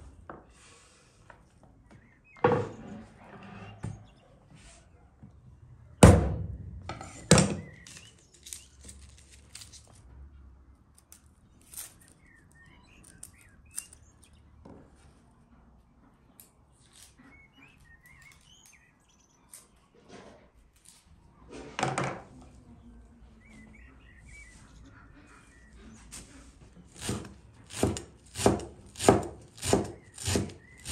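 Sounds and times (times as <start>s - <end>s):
birds chirping: 0.1s - 6.1s, 6.9s - 10.0s, 11.0s - 21.6s, 22.4s - 28.1s, 29.2s - 30.9s.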